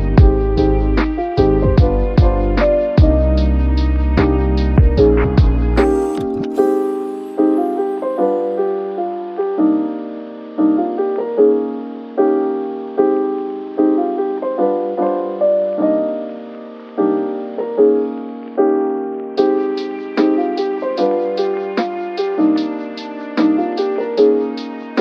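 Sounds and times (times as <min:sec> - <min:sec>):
slow piano melody: 0:00.0 - 0:25.0.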